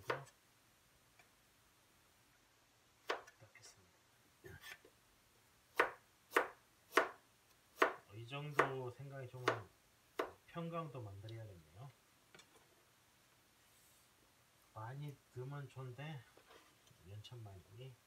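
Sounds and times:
knife chopping on cutting board: 5.8s - 7.2s, 7.8s - 8.8s, 9.4s - 9.6s.

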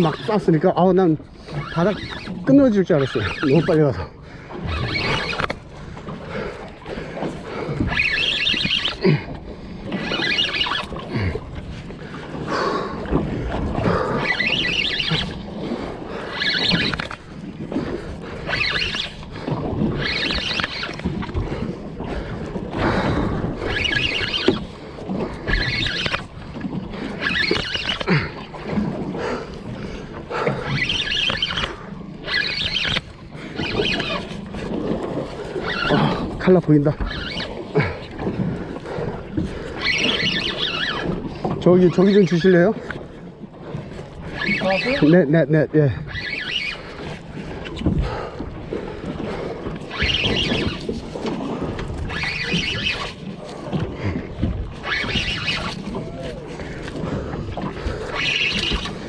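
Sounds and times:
fishing reel cranking: 0.0s - 5.7s, 7.6s - 9.2s, 9.9s - 11.3s, 13.8s - 15.5s, 16.1s - 17.4s, 18.3s - 21.6s, 23.6s - 26.4s, 27.0s - 28.3s, 30.6s - 34.4s, 35.2s - 38.0s, 39.6s - 41.3s, 44.2s - 45.4s, 46.0s - 47.2s, 49.8s - 51.1s, 51.7s - 53.8s, 54.7s - 57.0s, 57.8s - 59.0s
sea noise: 0.0s - 59.0s
wind: 0.0s - 59.0s.

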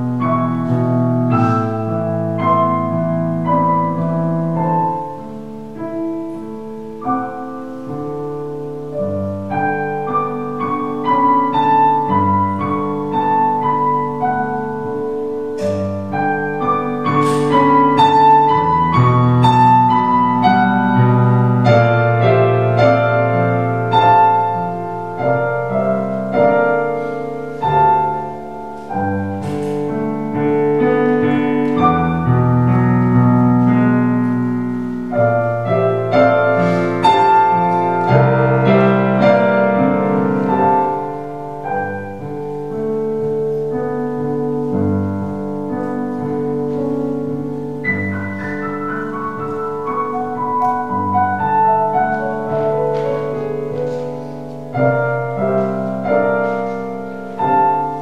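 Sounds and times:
slow solo piano piece: 0.0s - 58.0s.

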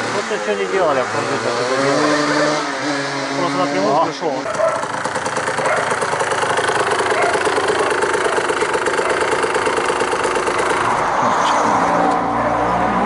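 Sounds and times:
motorcycle engine idling: 4.0s - 11.0s.

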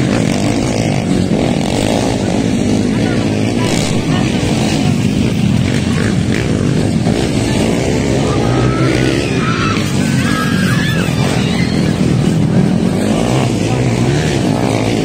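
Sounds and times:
dirt bike engines droning: 0.0s - 15.0s.

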